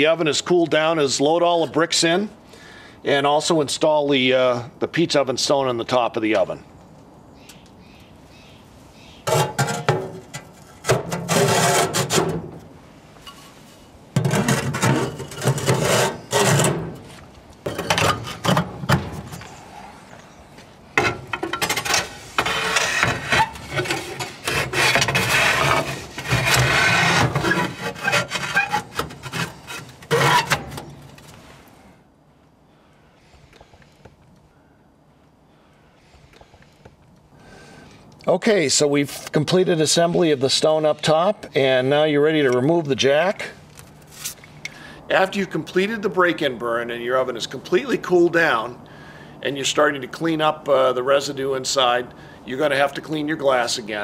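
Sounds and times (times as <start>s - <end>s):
bricks scraping: 9.3s - 12.4s, 14.2s - 19.6s, 21.0s - 31.3s.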